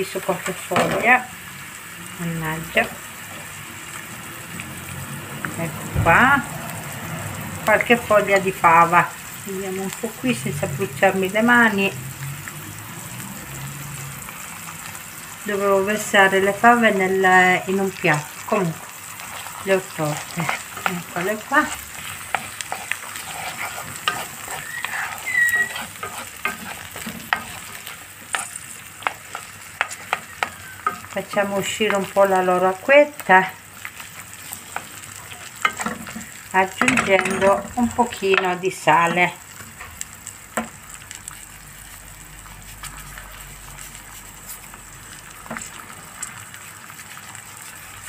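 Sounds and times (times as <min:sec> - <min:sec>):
beans and onion sizzling in oil: 0:00.0 - 0:48.0
wooden spatula scraping pan: 0:18.1 - 0:32.6, 0:34.2 - 0:39.2
brief high squeak: 0:24.5 - 0:25.8.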